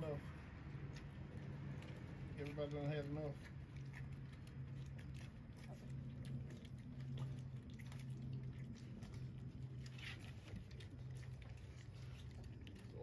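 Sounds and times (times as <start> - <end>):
puppies lapping liquid: 0.0 - 13.0
low hum: 3.4 - 13.0.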